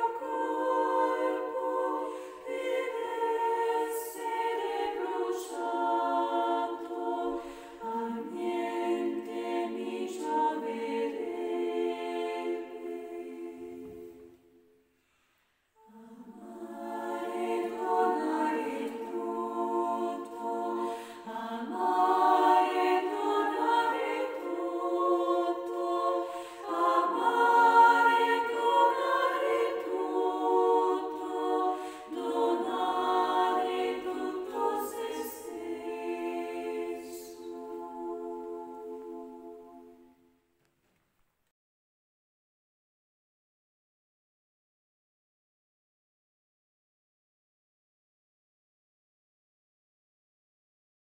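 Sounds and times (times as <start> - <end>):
choir singing a slow chant: 0.0 - 14.7, 15.7 - 40.4.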